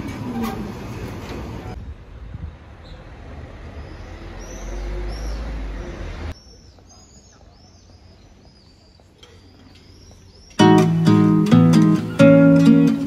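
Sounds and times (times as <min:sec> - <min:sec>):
street ambience: 0:00.0 - 0:13.0
small birds chirping: 0:02.8 - 0:13.0.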